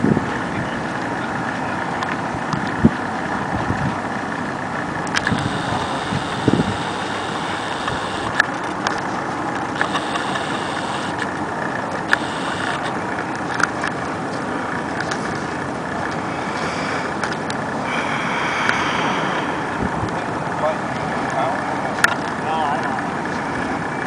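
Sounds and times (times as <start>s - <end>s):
wind rushing over microphone: 0.0s - 1.5s, 2.1s - 8.9s, 14.8s - 20.7s
sharp clicks: 5.1s - 9.1s, 9.8s - 14.0s.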